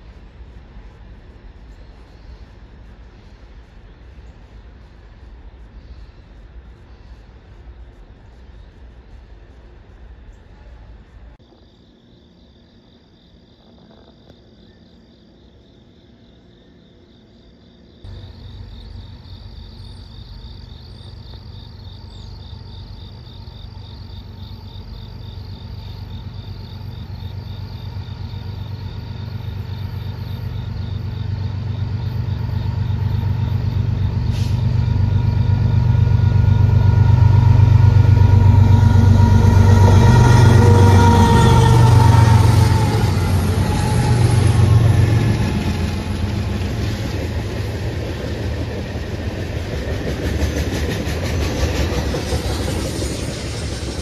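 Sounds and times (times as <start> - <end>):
freight train rumbling: 0.0 - 11.6, 18.0 - 54.0
insects chirping: 11.4 - 54.0.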